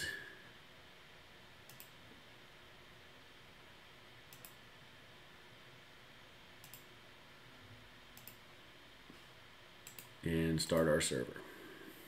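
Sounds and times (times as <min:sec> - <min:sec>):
computer mouse clicks: 0:01.6 - 0:02.0, 0:04.3 - 0:04.6, 0:06.6 - 0:06.9, 0:08.1 - 0:08.4, 0:09.8 - 0:10.8.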